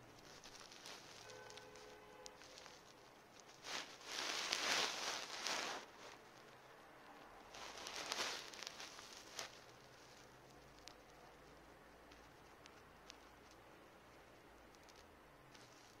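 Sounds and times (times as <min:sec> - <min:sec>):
fur rubbing against microphone: 0:00.2 - 0:06.4, 0:07.5 - 0:10.3.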